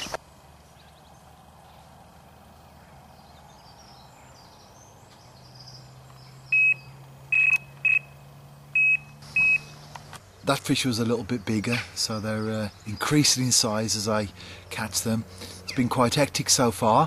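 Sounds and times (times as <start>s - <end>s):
fishing bite alarm beeping: 6.5s - 8.2s, 8.8s - 9.7s.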